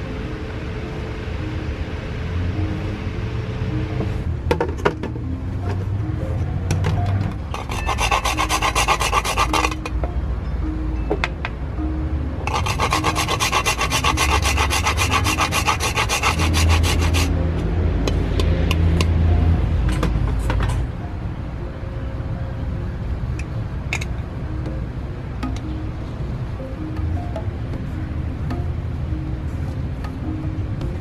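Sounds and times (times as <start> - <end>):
spice grated by hand: 7.6 - 9.8, 12.5 - 17.3.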